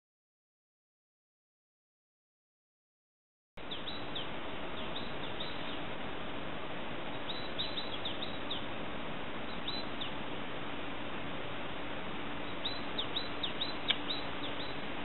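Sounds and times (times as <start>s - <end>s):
small birds chirping: 3.6s - 6.0s, 7.0s - 10.3s, 12.3s - 15.0s
steady hiss: 3.6s - 15.0s.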